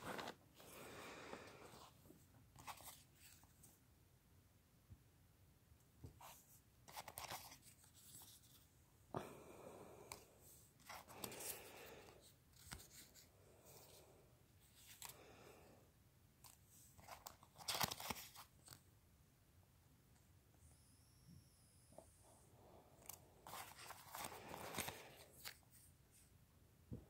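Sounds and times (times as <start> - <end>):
stickers and paper card crinkling: 2.6 - 3.5, 6.9 - 8.6, 10.8 - 14.0, 16.4 - 18.8, 23.0 - 25.9.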